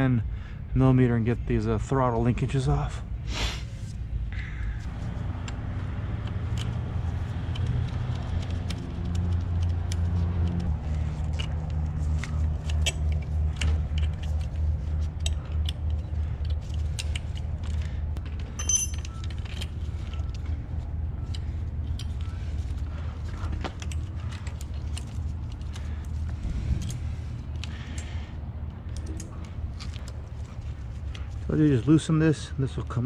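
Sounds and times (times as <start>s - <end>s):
light metal clicks and taps: 7.5s - 20.5s
low pulsing rumble: 9.8s - 31.6s.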